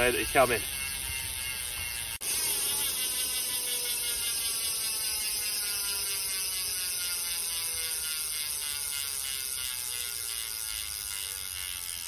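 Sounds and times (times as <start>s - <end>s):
bicycle hub freewheel buzzing: 0.0s - 12.0s.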